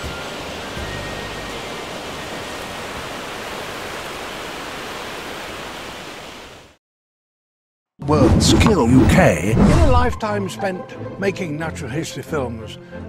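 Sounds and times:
sea surf rushing: 0.0s - 6.8s.

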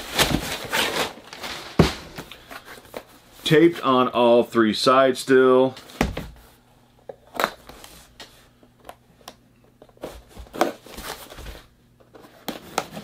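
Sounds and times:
tape and cardboard crackling: 0.0s - 3.2s, 7.1s - 13.0s.

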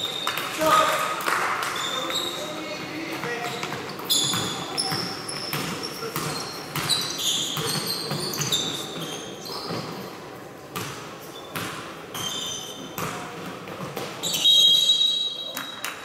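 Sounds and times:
shoe squeaks: 1.7s - 10.2s, 11.2s - 13.0s, 14.2s - 15.9s
basketball bouncing on gym floor: 2.8s - 10.0s, 10.7s - 14.4s.

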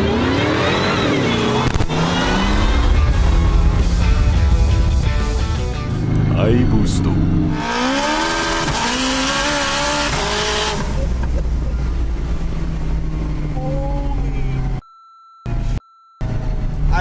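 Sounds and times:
car engine revving: 0.0s - 14.8s
turbo rushing noise: 1.7s - 6.6s
faint steady beep: 14.8s - 16.3s.

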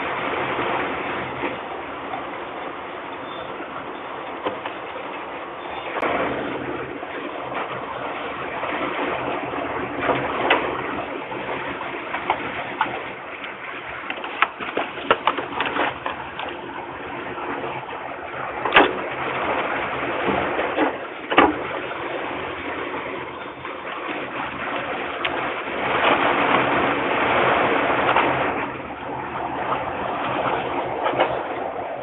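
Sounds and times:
steady microphone rushing noise: 24.6s - 32.0s.

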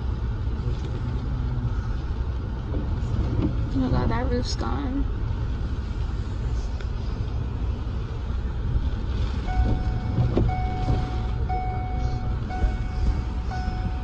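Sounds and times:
car driving rumble: 0.0s - 14.0s
electronic beep: 9.5s - 14.0s.

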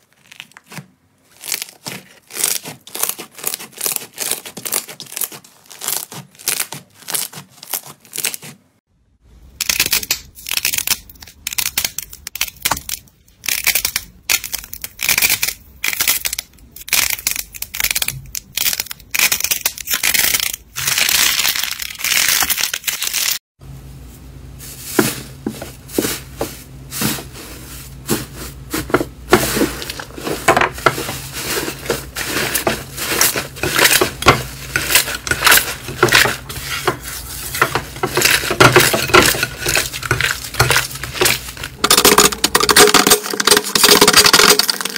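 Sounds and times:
slime crackling and popping: 0.0s - 8.5s.

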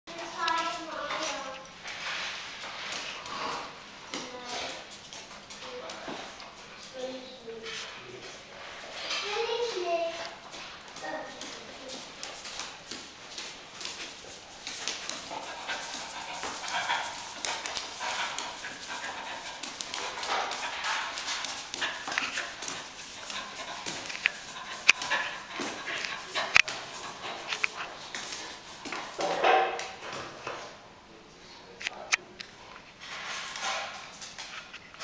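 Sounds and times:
claws clicking on wooden floor: 10.5s - 30.0s
dog panting: 13.7s - 29.2s.

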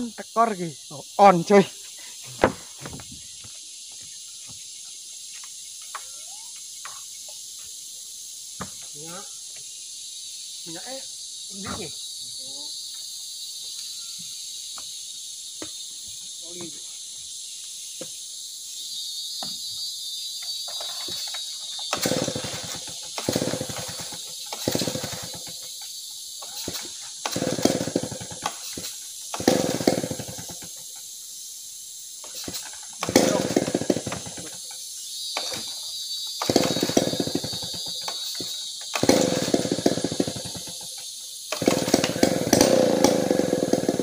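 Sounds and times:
insects shrilling: 0.0s - 44.0s
chainsaw pull-start sputtering: 20.7s - 30.8s, 32.2s - 34.8s, 35.4s - 35.8s, 36.4s - 44.0s.

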